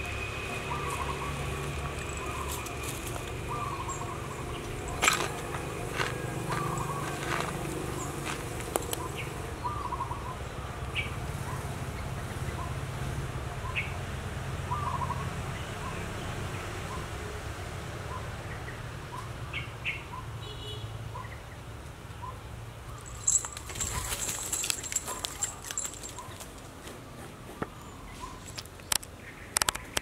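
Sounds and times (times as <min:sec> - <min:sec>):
bird chirping: 0:00.0 - 0:11.2
collar bell jingling: 0:00.7 - 0:08.3, 0:22.9 - 0:26.7.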